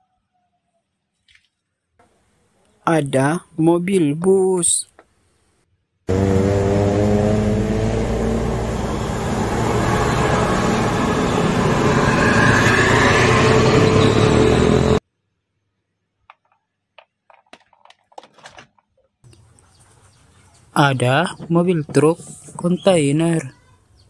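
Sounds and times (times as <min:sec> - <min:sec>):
bus diesel engine under load: 0:06.1 - 0:15.0
rising whine: 0:06.1 - 0:15.0
plastic toys clicking: 0:16.3 - 0:19.1.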